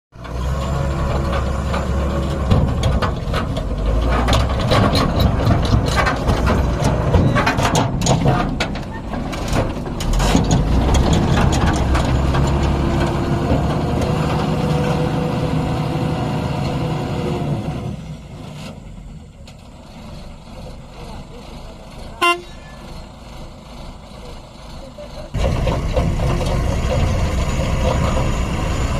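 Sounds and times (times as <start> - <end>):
diesel truck engine pulling away: 0.2 - 28.9
sharp clicks and knocks: 1.0 - 14.5.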